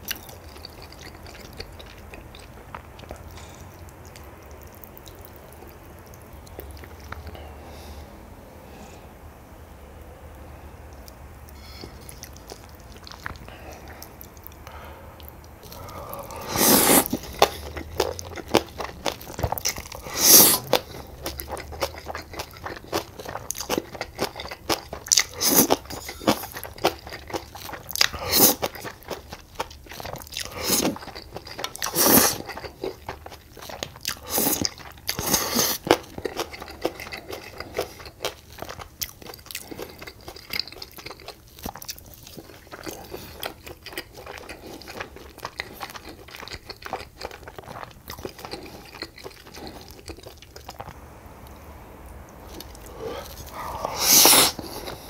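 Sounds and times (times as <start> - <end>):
crunchy bites and chewing: 11.0 - 51.0.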